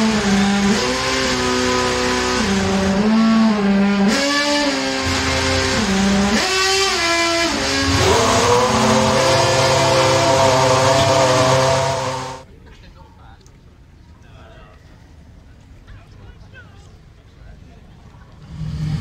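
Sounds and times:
racing car engine revving: 0:00.0 - 0:12.4, 0:18.4 - 0:19.0.

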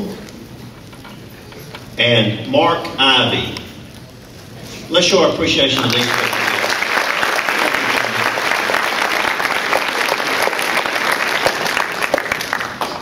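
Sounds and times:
audience applauding: 0:05.6 - 0:13.0.

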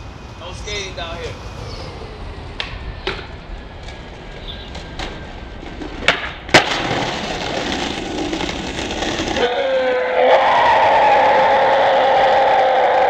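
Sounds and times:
skateboard wheels rolling on concrete: 0:00.0 - 0:13.0
skateboard wheels clicking over joints: 0:02.6 - 0:13.0
skateboard pop: 0:05.8 - 0:09.4
skateboard landing slap: 0:06.0 - 0:08.6.

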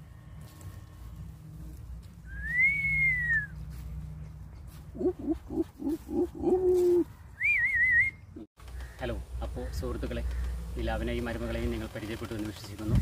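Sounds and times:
person whistling long note: 0:02.3 - 0:03.5, 0:07.4 - 0:08.2
short low calls: 0:04.9 - 0:08.5.

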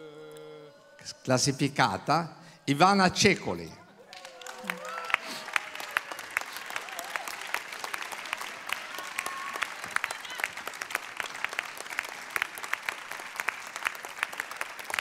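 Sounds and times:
crowd applauding: 0:04.0 - 0:15.0.

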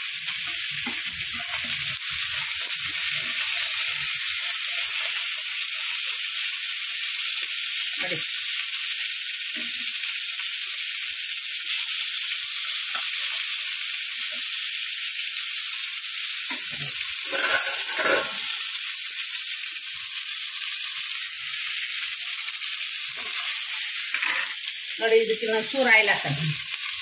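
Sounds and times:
fish sizzling in oil: 0:00.0 - 0:27.0
metal spatula scraping: 0:17.3 - 0:18.5.

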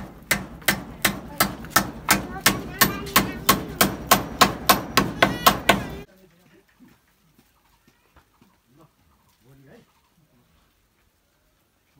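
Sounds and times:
hammer striking bamboo slats: 0:00.0 - 0:06.1.

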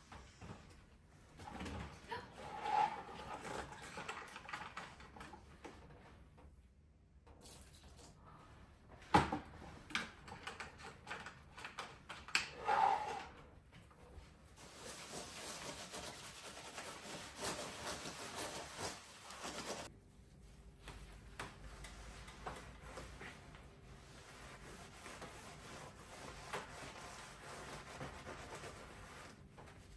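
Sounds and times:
sponge scrubbing keyboard: 0:14.6 - 0:19.9, 0:21.6 - 0:29.4.

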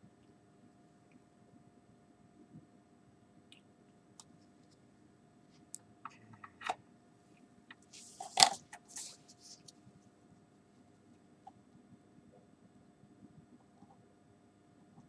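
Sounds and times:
rustling: 0:07.8 - 0:09.8.

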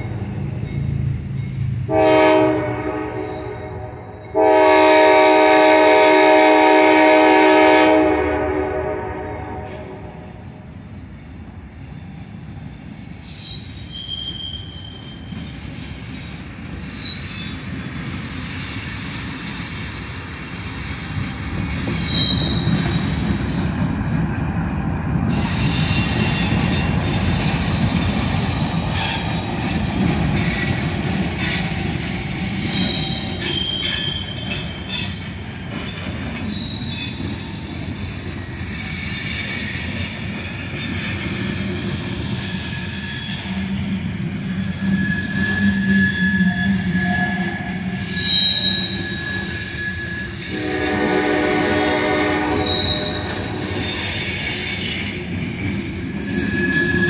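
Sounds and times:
high wheel squeals: 0:11.8 - 0:23.8, 0:25.3 - 0:57.0
diesel locomotive rumble: 0:19.2 - 0:38.0.

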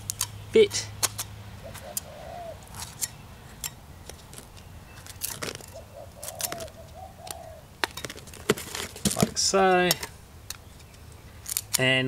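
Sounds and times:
bird cooing: 0:01.6 - 0:08.2
scraper clicks and scrapes on stone: 0:04.1 - 0:06.7.

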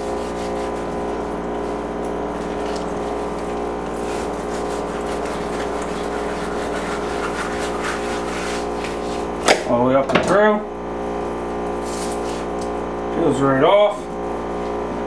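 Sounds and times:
knife scraping fish skin: 0:00.0 - 0:01.6, 0:02.4 - 0:09.4.

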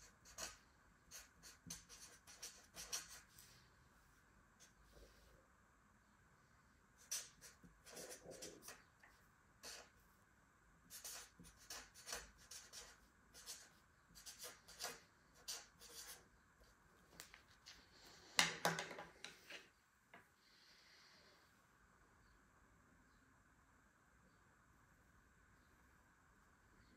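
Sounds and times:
marker scratching on paper: 0:00.0 - 0:03.6, 0:07.0 - 0:08.9, 0:09.6 - 0:10.0, 0:10.9 - 0:16.3.

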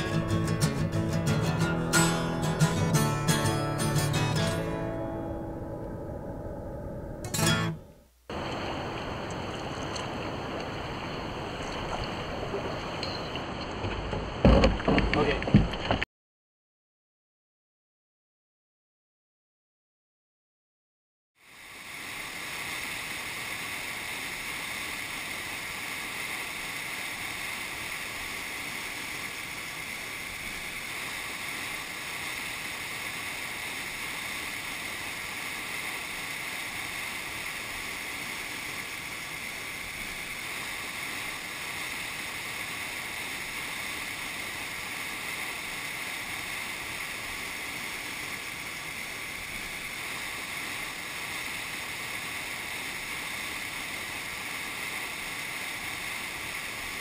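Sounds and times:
river rapids rushing: 0:07.3 - 0:15.6, 0:21.6 - 0:57.0.

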